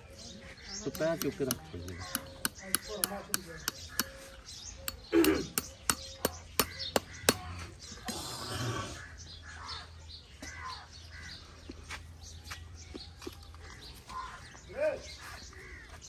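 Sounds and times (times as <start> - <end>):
sharp metal clicks of tools: 0.8 - 4.2
crows cawing: 1.4 - 4.3, 6.6 - 7.7, 8.6 - 11.6, 13.6 - 14.6, 15.2 - 16.0.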